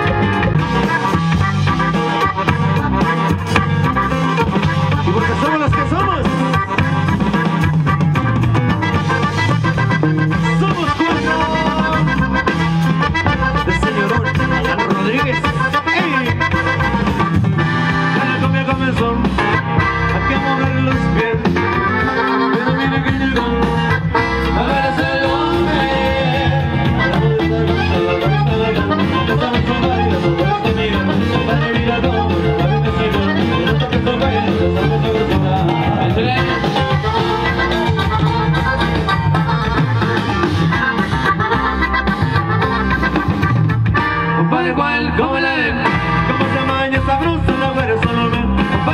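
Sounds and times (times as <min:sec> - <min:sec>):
live band dance music: 0:00.0 - 0:48.9.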